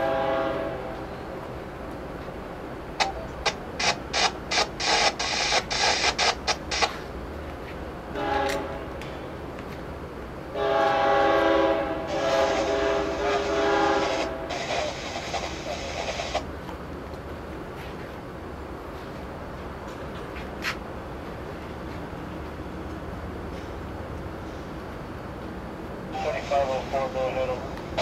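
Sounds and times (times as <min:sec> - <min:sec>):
locomotive air horn: 0:00.0 - 0:01.0, 0:08.1 - 0:08.9, 0:10.6 - 0:15.0
sharp bursts: 0:03.0 - 0:07.0.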